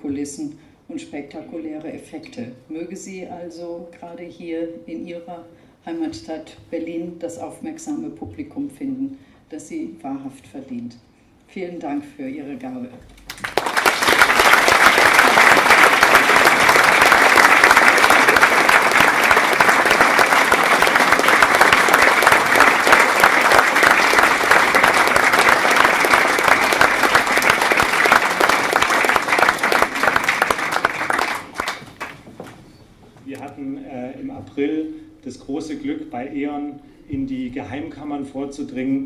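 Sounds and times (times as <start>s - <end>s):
audience applauding: 13.3s - 32.3s.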